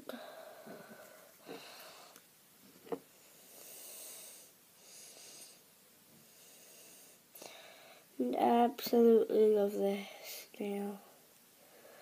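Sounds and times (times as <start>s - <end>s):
soft breathing: 0.0s - 2.2s, 3.1s - 8.2s, 11.1s - 12.0s.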